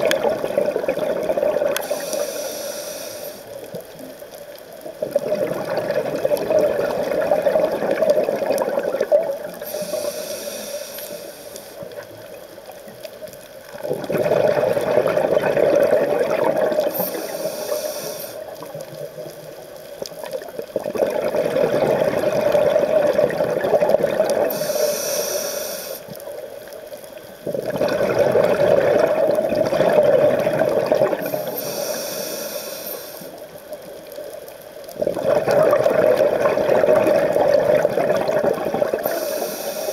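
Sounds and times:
exhaled bubbles rushing: 0:00.0 - 0:02.0, 0:05.0 - 0:09.7, 0:13.8 - 0:17.0, 0:20.2 - 0:24.5, 0:27.4 - 0:31.4, 0:35.0 - 0:39.2
regulator inhalation hiss: 0:01.8 - 0:03.7, 0:09.5 - 0:12.0, 0:16.8 - 0:18.6, 0:24.4 - 0:26.4, 0:31.2 - 0:33.5, 0:39.0 - 0:39.9.

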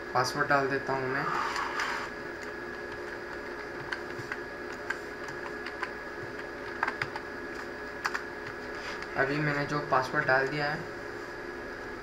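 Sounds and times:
steady background hum: 0:00.0 - 0:12.0
keyboard keys clicking: 0:02.4 - 0:08.6.

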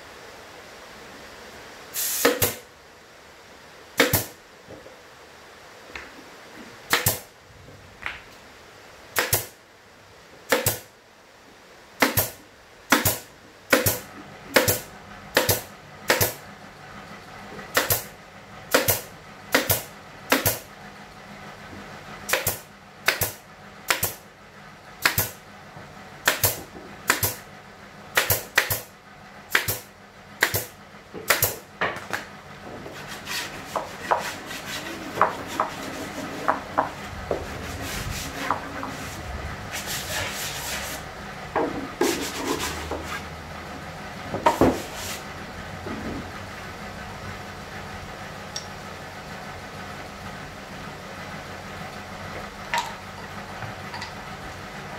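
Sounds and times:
pneumatic nailer firing into wood: 0:02.0 - 0:02.7, 0:04.0 - 0:04.4, 0:06.9 - 0:07.3, 0:09.2 - 0:09.6, 0:10.5 - 0:10.9, 0:12.0 - 0:16.4, 0:17.7 - 0:18.1, 0:18.7 - 0:20.7, 0:22.3 - 0:24.2, 0:25.0 - 0:25.4, 0:26.2 - 0:27.4, 0:28.1 - 0:28.9, 0:29.5 - 0:31.7
scraping and handling of wood: 0:31.2 - 0:41.0, 0:41.6 - 0:43.3, 0:44.4 - 0:46.4.

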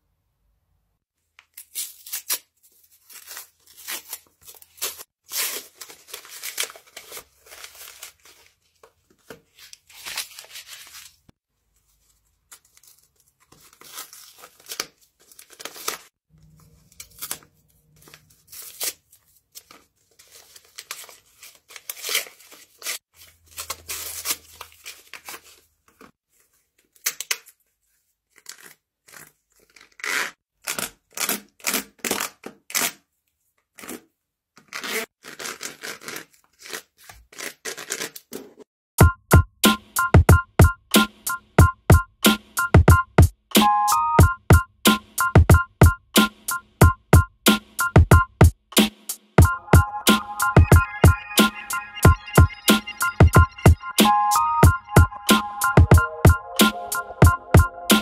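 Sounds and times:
paper wrapper ripping and rustling: 0:01.4 - 0:27.6.

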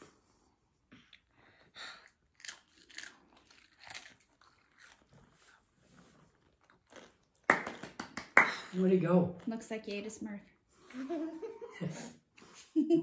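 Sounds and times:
child chewing crunchy chips: 0:01.0 - 0:07.4.

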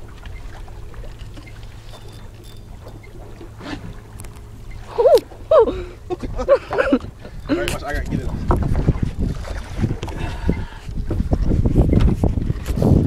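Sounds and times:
boat engine hum: 0:00.0 - 0:13.0
wind on the microphone: 0:05.1 - 0:13.0.

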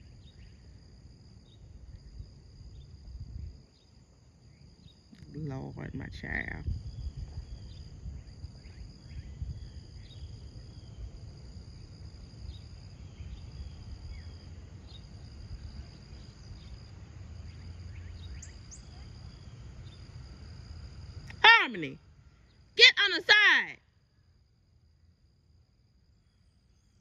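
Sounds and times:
high insect drone: 0:00.0 - 0:27.0
faint bird chirps: 0:17.4 - 0:20.0.

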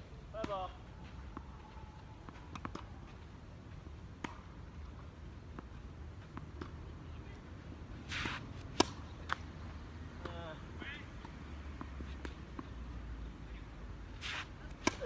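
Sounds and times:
tennis racket hitting ball: 0:08.1 - 0:09.4, 0:14.2 - 0:15.0.

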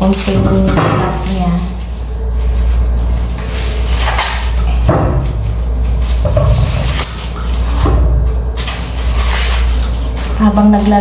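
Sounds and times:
steady low hum: 0:00.0 - 0:11.0
corn husks tearing: 0:08.5 - 0:11.0.

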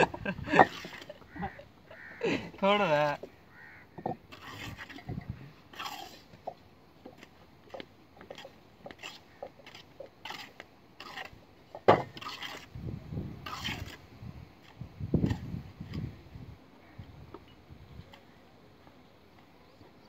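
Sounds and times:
wooden poles knocking and scraping: 0:00.0 - 0:01.7, 0:03.1 - 0:12.7.

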